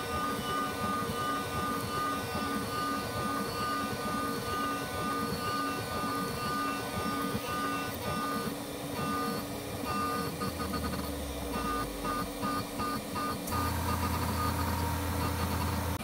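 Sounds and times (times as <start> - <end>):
end mill grinding plastic: 0.0 - 11.0
mill spindle whining: 0.0 - 16.0.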